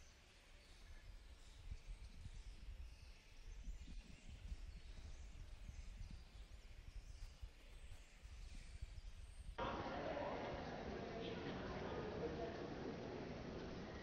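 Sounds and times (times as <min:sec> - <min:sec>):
faint bird chirps: 0:00.0 - 0:09.5.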